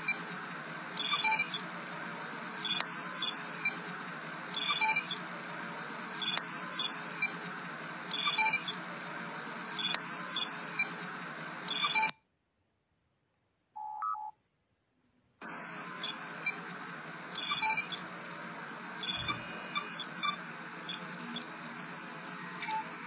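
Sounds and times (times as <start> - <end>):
computer ambience: 0.0 - 12.2, 15.4 - 23.0
short chirping beeps: 19.0 - 20.4
interface beep: 19.1 - 19.6.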